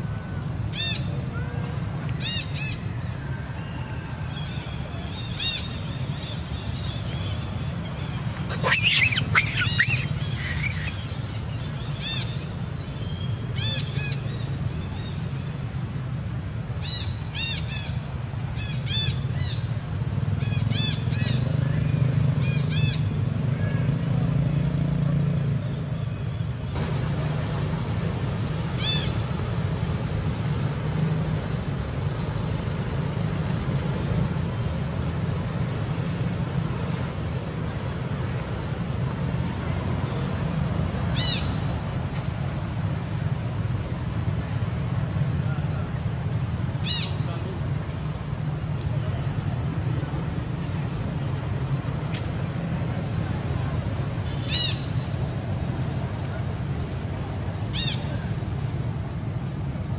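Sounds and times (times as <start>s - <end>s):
baby monkey squeaking cries: 8.5s - 11.0s.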